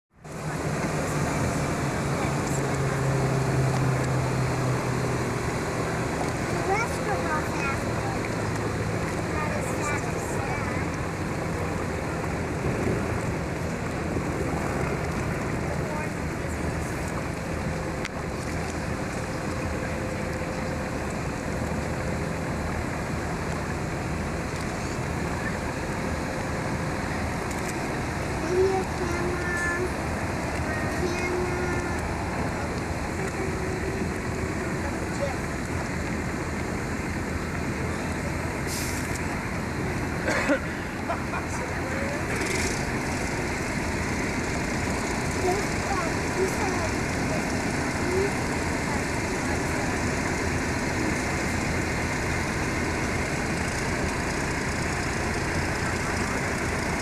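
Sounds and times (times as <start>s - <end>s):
engine running low: 0.1s - 57.0s
water noise: 0.1s - 57.0s
wind: 0.1s - 57.0s.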